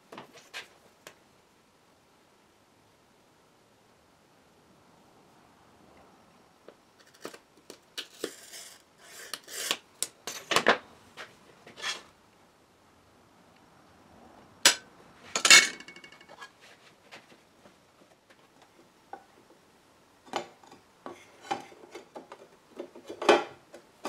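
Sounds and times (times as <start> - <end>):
glass cutter scoring glass: 8.0 - 10.1.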